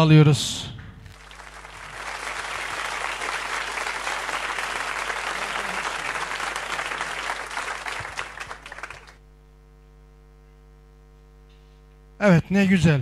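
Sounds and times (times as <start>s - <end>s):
applause: 1.0s - 9.2s.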